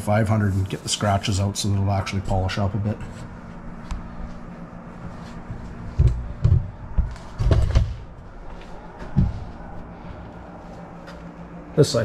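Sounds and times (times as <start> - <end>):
steady low hum: 0.0 - 12.0
dull thumps and knocks: 5.9 - 8.2, 9.0 - 9.5.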